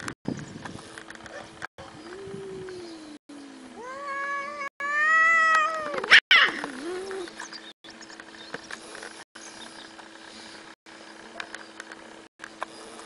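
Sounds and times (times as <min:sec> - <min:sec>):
cats yowling: 0:03.8 - 0:07.3.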